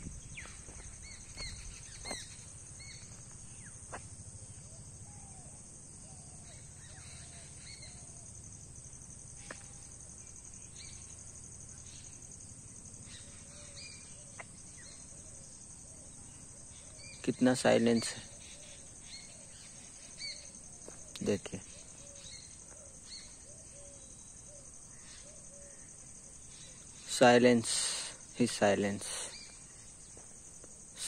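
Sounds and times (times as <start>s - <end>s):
bird chirps: 0.0s - 3.8s, 16.0s - 27.2s
high-pitched insect drone: 0.0s - 31.0s.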